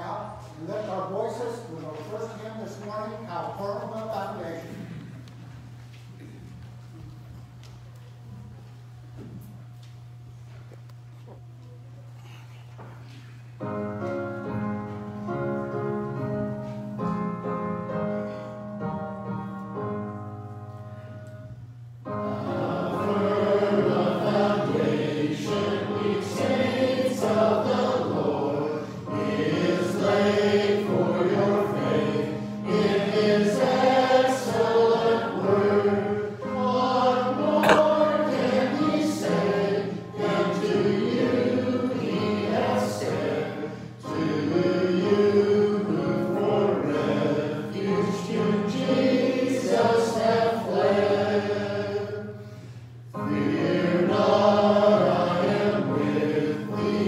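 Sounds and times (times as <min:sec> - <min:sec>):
congregation singing a hymn: 0:13.6 - 0:57.0.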